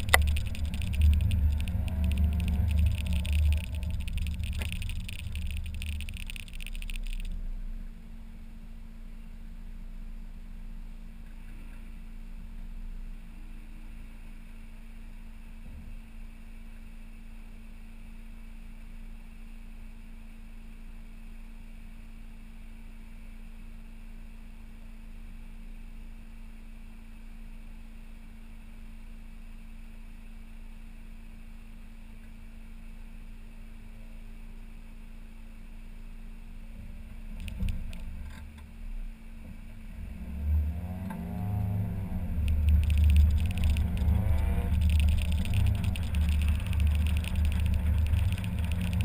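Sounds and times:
road and wind noise: 0.0 - 7.4, 39.8 - 49.0
car engine hum: 0.0 - 8.1, 36.7 - 49.0.

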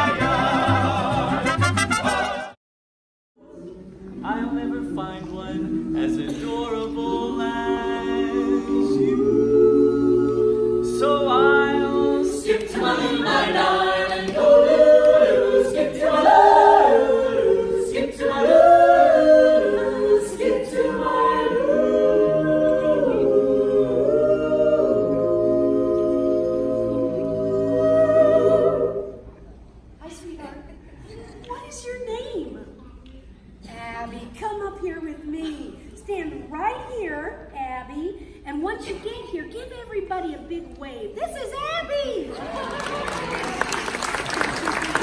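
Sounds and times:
a cappella ensemble singing harmony: 0.0 - 2.6, 3.4 - 29.9.

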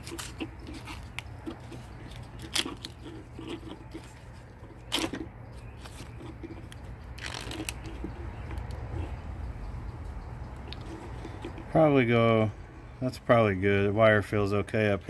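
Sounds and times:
wiring loom rustling and crinkling: 0.0 - 9.2.

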